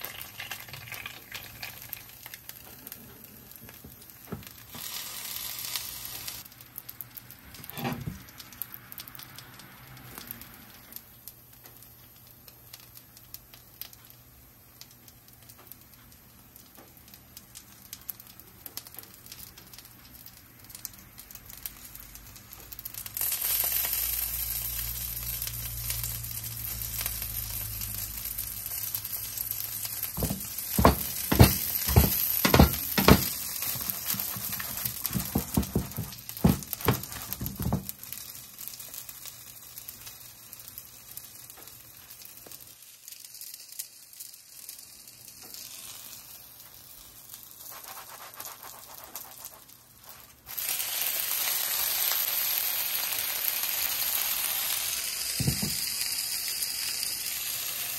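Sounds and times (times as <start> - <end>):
dumplings sizzling in oil: 0.0 - 57.9
pan knocking and scraping: 30.2 - 37.9.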